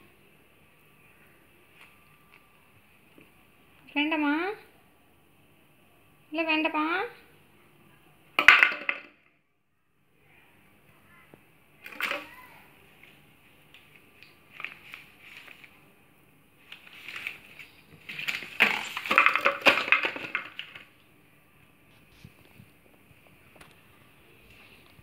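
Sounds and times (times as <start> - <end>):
plastic bottle crackling: 11.8 - 12.3, 16.7 - 21.0.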